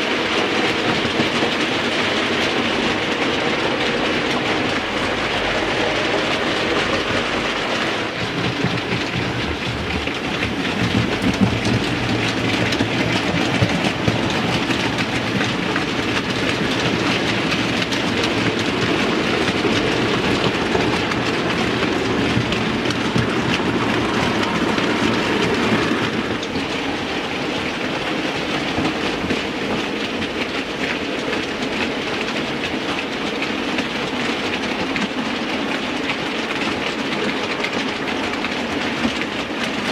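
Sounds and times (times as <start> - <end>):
model train wheels clickety-clack: 0.0 - 39.9.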